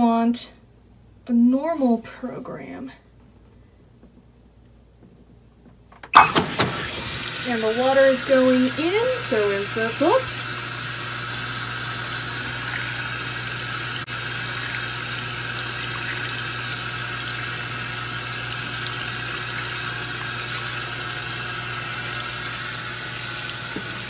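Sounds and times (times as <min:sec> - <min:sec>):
water pouring into tub: 0:06.2 - 0:24.0.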